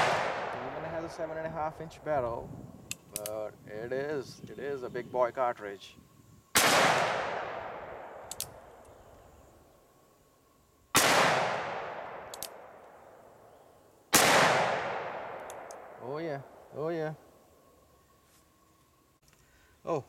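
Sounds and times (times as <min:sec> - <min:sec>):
revolver gunshots echoing: 0:00.0 - 0:01.3, 0:06.6 - 0:08.3, 0:10.9 - 0:12.8, 0:14.1 - 0:16.0.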